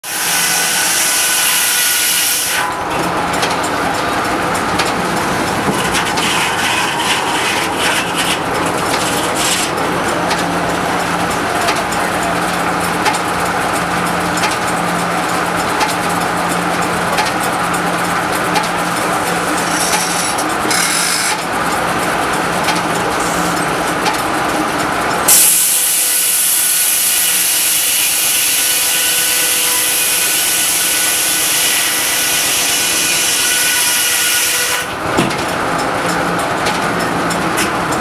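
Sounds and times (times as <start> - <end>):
saw blade screaming through log: 0.0 - 2.7, 6.0 - 8.4, 19.7 - 21.4, 25.3 - 34.9
sawmill humming: 0.0 - 38.0
knocks and clatter: 3.0 - 17.8, 35.0 - 38.0.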